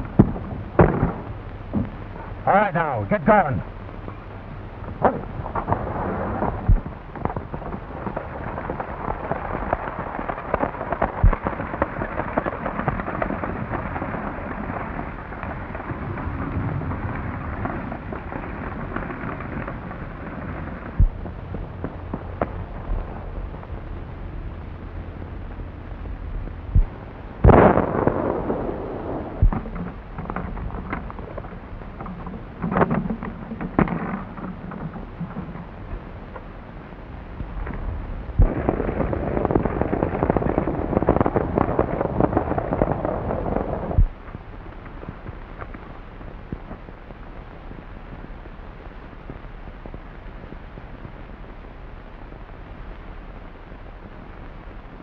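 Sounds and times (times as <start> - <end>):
clatter of hooves and wheels: 0.0 - 27.1, 27.9 - 36.6
crackly film soundtrack: 0.0 - 55.0.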